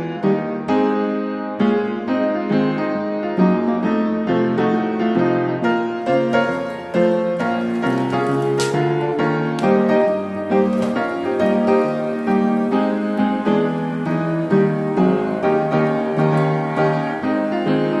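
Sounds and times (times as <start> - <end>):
piano melody: 0.0 - 18.0.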